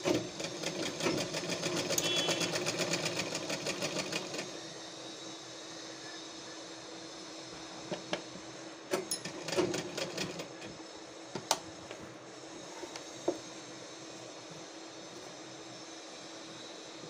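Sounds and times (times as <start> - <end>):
sewing machine humming: 0.0 - 4.6, 8.9 - 10.6.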